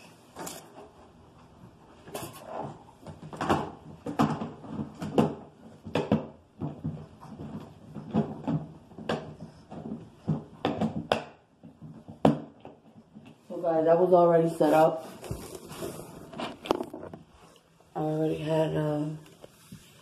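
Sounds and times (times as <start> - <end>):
cardboard rustling: 14.8 - 17.5.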